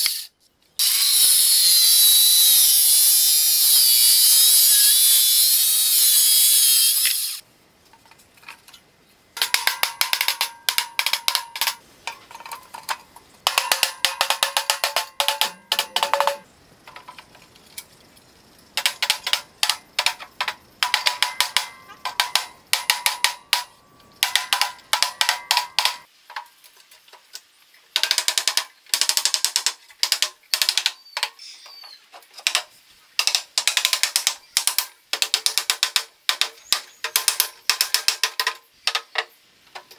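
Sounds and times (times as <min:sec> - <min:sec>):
circular saw cutting wood: 0:00.0 - 0:07.4
hand ratchet clicking: 0:13.5 - 0:16.4.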